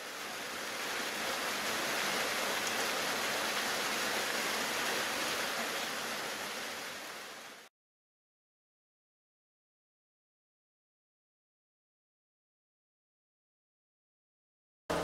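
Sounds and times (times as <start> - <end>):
waterfall splashing into pool: 0.0 - 7.7.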